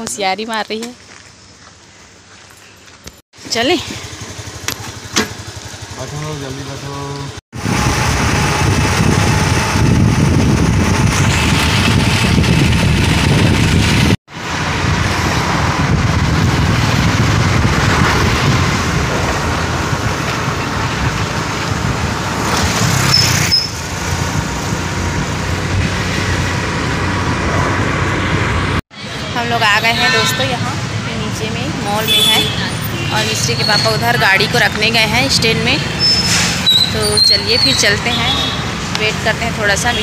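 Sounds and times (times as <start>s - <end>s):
traffic noise: 0.0s - 40.0s
wind rushing over microphone: 7.5s - 28.8s.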